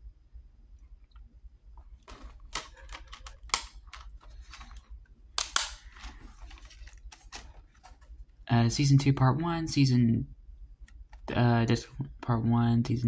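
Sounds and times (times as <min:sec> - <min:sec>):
plastic dvd case clicks and clacks: 0:02.0 - 0:08.1.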